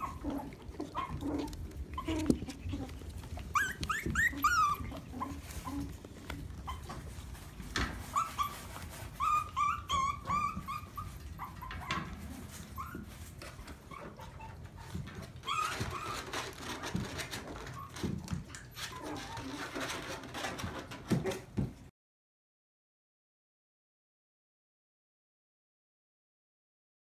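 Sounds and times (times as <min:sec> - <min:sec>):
puppies yipping and whimpering: 0:00.0 - 0:21.5
puppies scuffling: 0:00.0 - 0:21.9.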